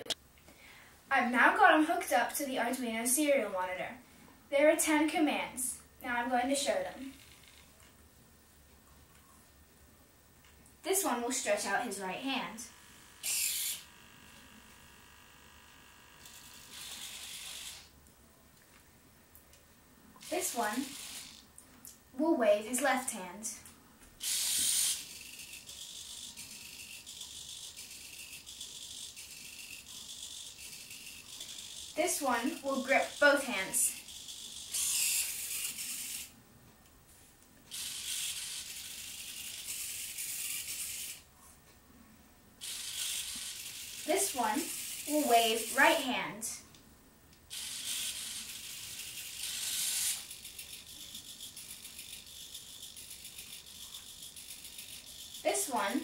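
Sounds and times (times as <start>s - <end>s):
servo motors whirring: 13.2s - 15.0s, 16.2s - 17.9s, 20.3s - 21.4s, 24.2s - 36.3s, 37.7s - 41.2s, 42.6s - 46.0s, 47.5s - 55.9s.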